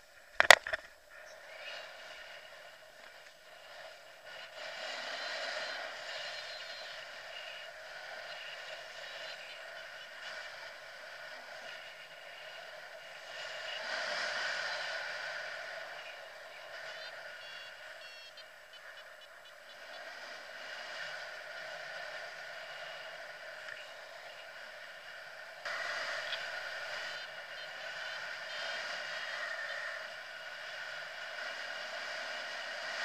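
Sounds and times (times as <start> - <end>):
wind rushing over camera: 0.0 - 33.0.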